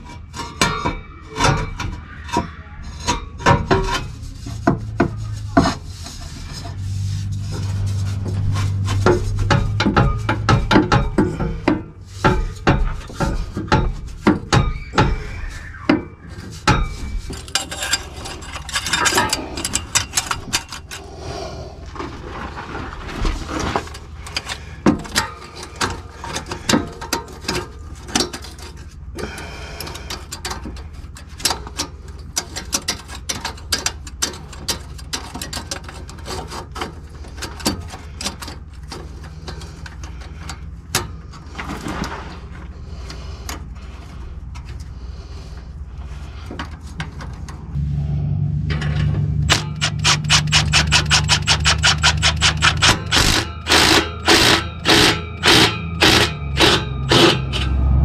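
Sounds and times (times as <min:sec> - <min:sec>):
hand tools clanking on metal: 0:00.0 - 0:21.1, 0:23.6 - 0:43.9, 0:48.7 - 0:58.0
low hum: 0:02.8 - 0:24.8, 0:47.2 - 0:58.0.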